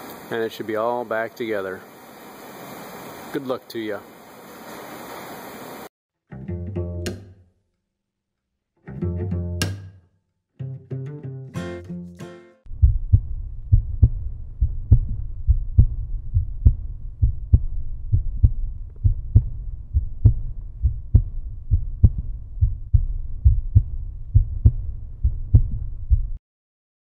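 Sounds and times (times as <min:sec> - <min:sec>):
low heartbeat-like pulse: 0:12.7 - 0:26.4.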